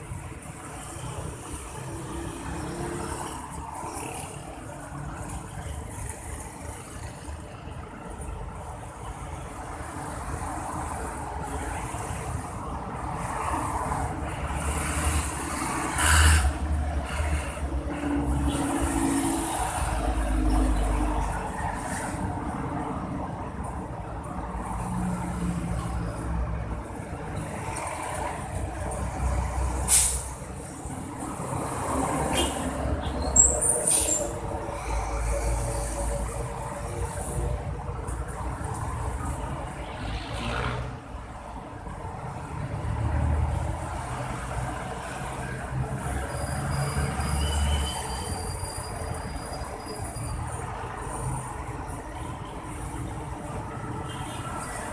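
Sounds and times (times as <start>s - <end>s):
street traffic: 0.0s - 54.9s
short hiss: 29.9s - 30.3s
brief high squeal: 46.3s - 50.5s.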